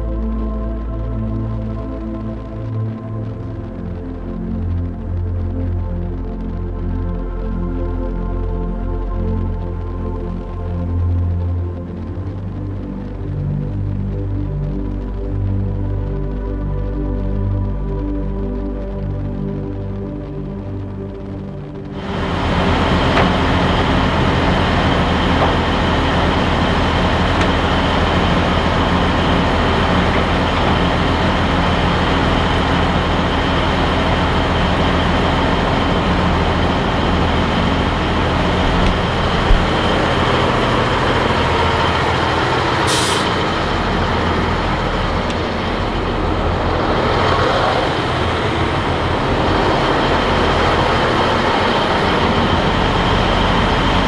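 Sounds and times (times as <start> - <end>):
road noise: 20.9 - 54.0
truck diesel engine running: 21.9 - 54.0
air hiss: 42.8 - 43.5.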